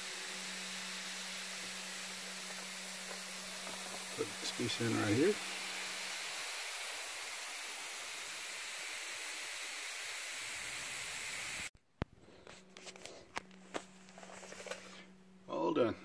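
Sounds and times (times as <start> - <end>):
steam hissing from irons: 0.0 - 11.7.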